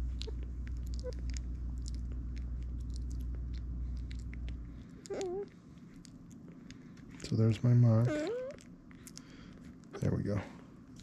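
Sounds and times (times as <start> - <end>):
steady low hum: 0.0 - 11.0
puppy mouth clicks and sucking: 0.1 - 7.4.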